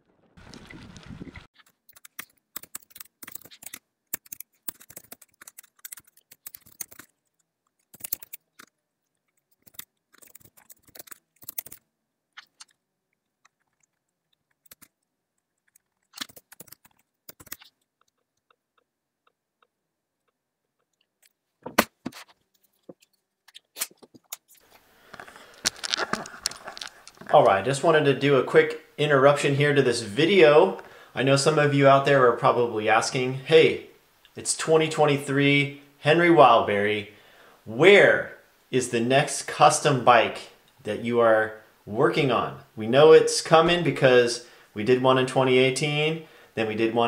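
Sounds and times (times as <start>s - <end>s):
clicking and crunching: 0.1s - 11.8s, 12.4s - 27.6s.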